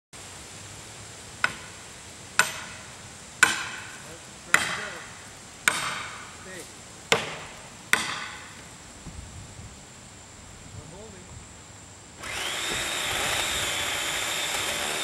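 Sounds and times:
axe chopping tree trunk: 0:01.4 - 0:01.7, 0:02.4 - 0:02.8, 0:03.4 - 0:05.0, 0:05.6 - 0:06.3, 0:07.1 - 0:08.5.

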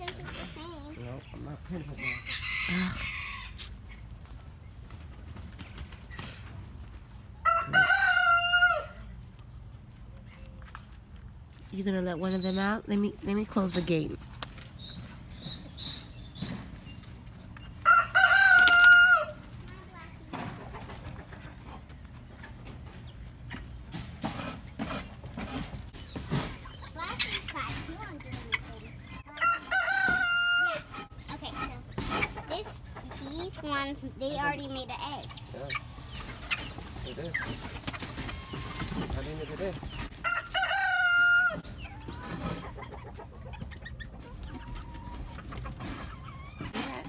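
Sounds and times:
chickens clucking: 0:00.0 - 0:47.0
rooster crowing: 0:02.0 - 0:03.5, 0:07.4 - 0:09.0, 0:17.8 - 0:19.4, 0:40.2 - 0:41.6.

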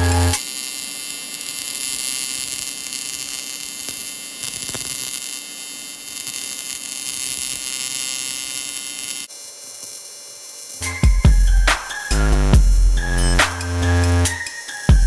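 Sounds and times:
electrical hum: 0:00.0 - 0:00.5
welding arc buzzing hiss: 0:00.0 - 0:15.0.

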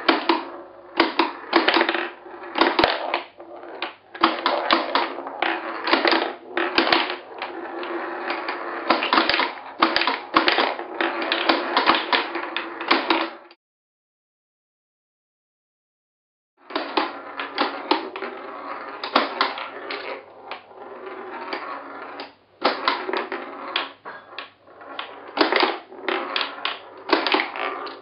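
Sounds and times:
steel ball rolling and clattering: 0:00.0 - 0:13.5, 0:16.7 - 0:28.0.

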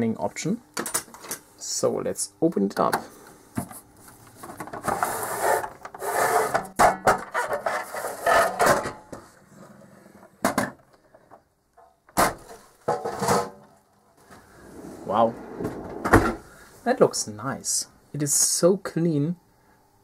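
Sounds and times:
metal case scraping and sliding: 0:14.3 - 0:16.4.

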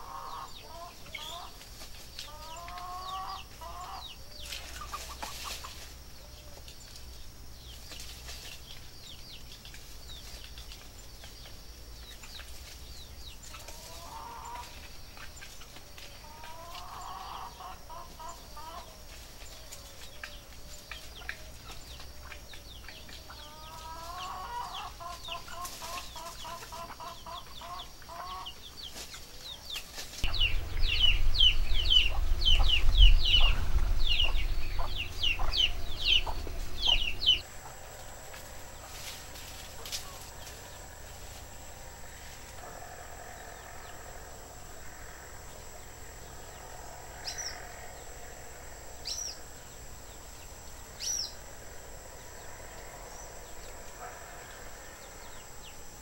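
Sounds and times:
clucking bird calls: 0:00.0 - 0:44.2
small birds chirping: 0:00.0 - 0:56.0
loud low rumble: 0:30.2 - 0:56.0.

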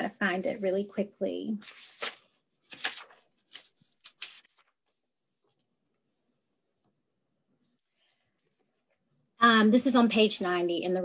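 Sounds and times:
book pages flipping: 0:01.6 - 0:05.7.

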